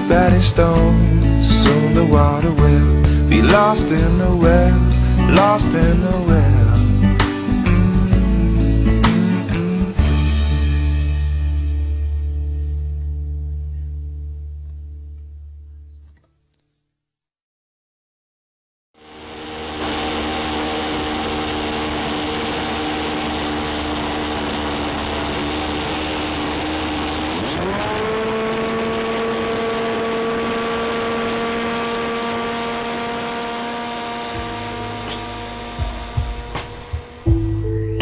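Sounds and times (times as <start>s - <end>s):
model airplane engine revving: 19.0s - 37.3s.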